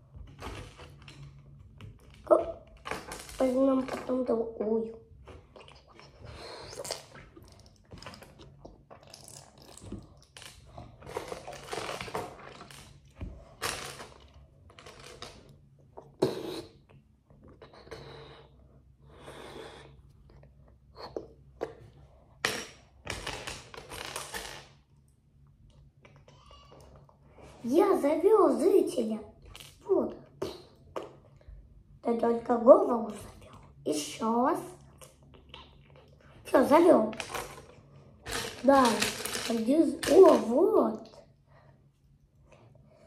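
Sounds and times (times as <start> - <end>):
plastic bricks clattering: 37.1 - 40.5.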